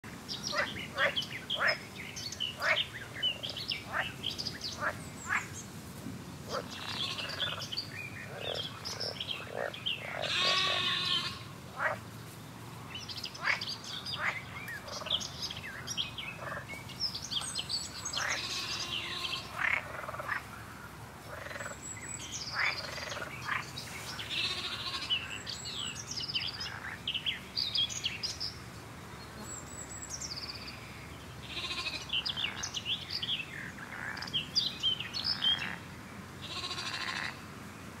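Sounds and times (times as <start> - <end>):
birds chirping and trilling: 0.0 - 5.7, 6.4 - 12.0, 12.9 - 28.6, 29.3 - 37.4
frogs croaking: 0.5 - 1.9, 6.5 - 12.0, 13.4 - 16.8, 18.0 - 20.6, 21.3 - 23.7, 35.2 - 37.4
sheep bleating: 6.8 - 7.4, 10.1 - 11.5, 18.2 - 19.6, 24.2 - 25.3, 31.4 - 32.1, 36.4 - 37.4.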